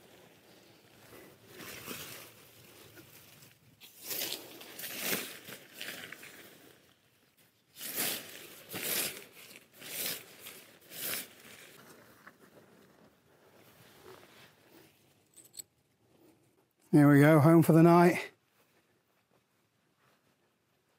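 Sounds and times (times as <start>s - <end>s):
fabric and plastic rustling: 0.0s - 15.6s.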